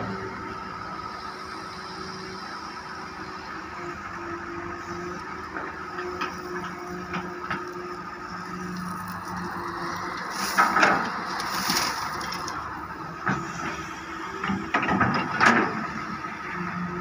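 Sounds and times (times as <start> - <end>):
diesel engine under hydraulic load: 0.0 - 17.0
bucket teeth scraping gravel: 8.4 - 12.7
gravel pouring into steel truck bed: 8.7 - 12.6.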